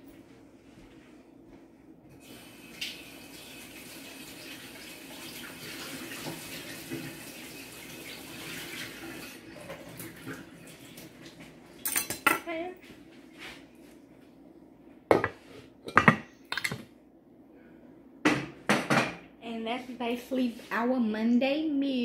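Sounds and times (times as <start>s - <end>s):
kitchen tap running: 2.2s - 12.2s.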